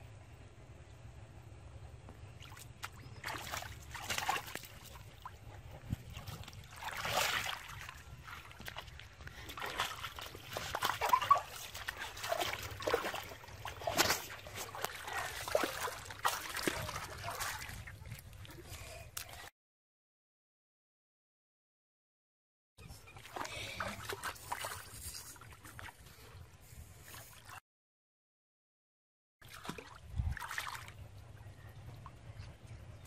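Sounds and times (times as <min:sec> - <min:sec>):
feet splashing in muddy water: 0:02.4 - 0:19.5, 0:23.2 - 0:26.4, 0:29.4 - 0:31.0.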